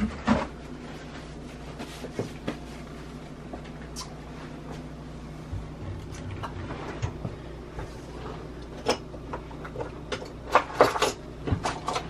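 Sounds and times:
kitchen things knocking and clattering: 8.7s - 12.0s.

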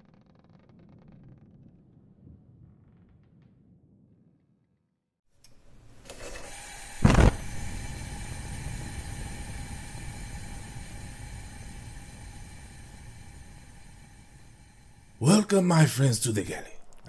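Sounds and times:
mechanical hum with faint tones: 5.4s - 16.9s
loud thump: 7.0s - 7.5s.

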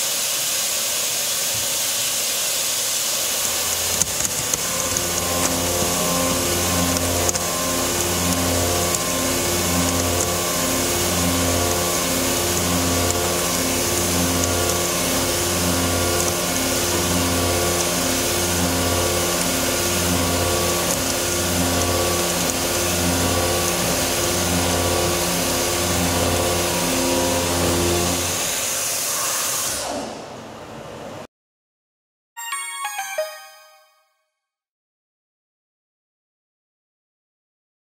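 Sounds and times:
milling cutter machining hum: 2.9s - 28.7s.

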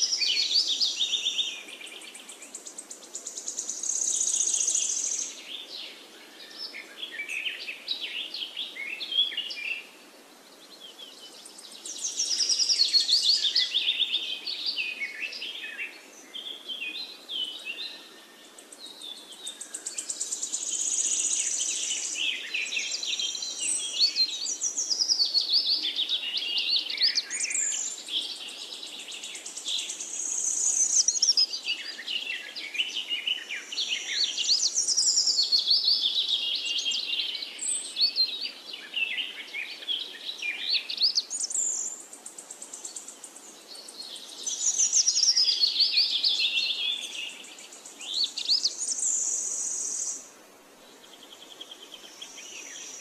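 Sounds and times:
birds chirping and singing: 10.6s - 50.2s.

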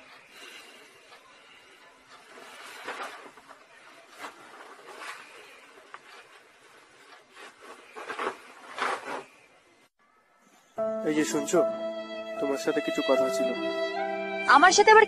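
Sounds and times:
leather jacket rustling: 2.4s - 9.5s.

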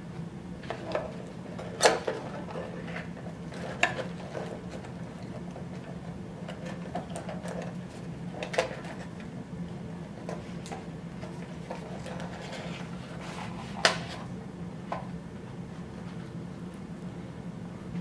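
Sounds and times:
cardboard rustling and scraping: 11.2s - 14.3s.

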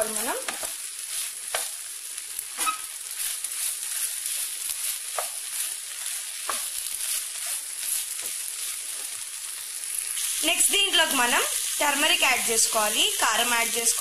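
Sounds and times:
vegetables sizzling in oil: 0.0s - 14.0s
wooden spatula stirring pan: 0.4s - 1.8s, 2.6s - 9.2s.

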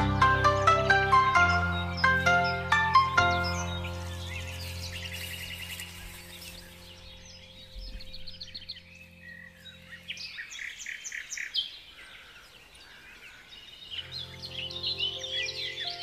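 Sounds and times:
soft music drone: 0.0s - 10.4s
small birds chirping: 0.0s - 16.0s.

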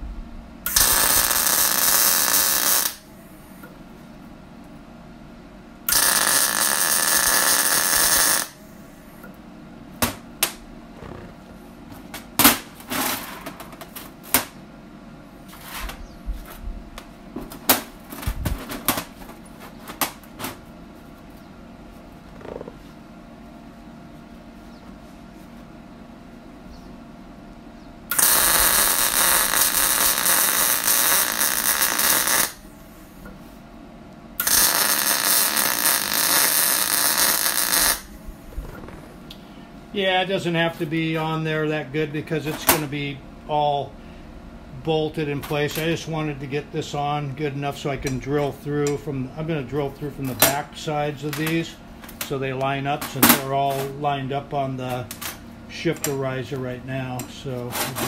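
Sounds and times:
welder arc crackling: 0.7s - 3.1s, 5.8s - 8.6s, 28.1s - 32.7s, 34.4s - 39.4s.

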